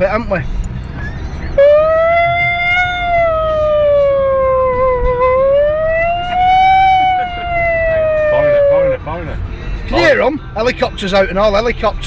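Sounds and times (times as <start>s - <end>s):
siren wailing: 1.6s - 9.1s.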